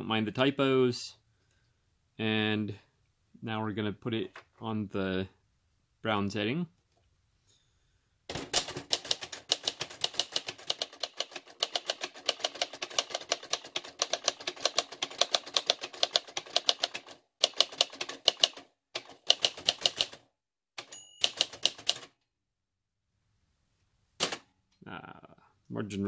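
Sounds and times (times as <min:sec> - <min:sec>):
manual typewriter keystrokes: 0:08.3 - 0:20.2, 0:20.8 - 0:22.2
typewriter bell ding: 0:20.8 - 0:21.7.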